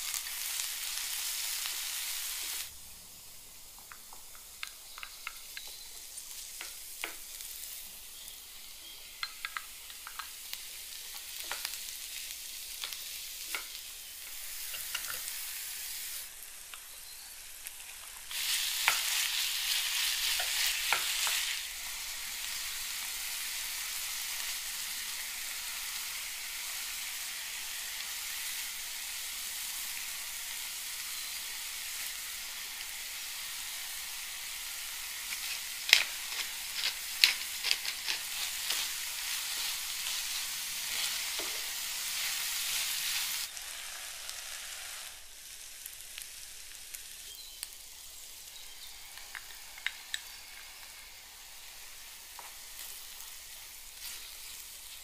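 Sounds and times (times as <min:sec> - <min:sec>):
food sizzling in a frying pan: 0:00.0 - 0:55.0
sharp clicks and taps: 0:03.7 - 0:05.8, 0:09.2 - 0:10.4.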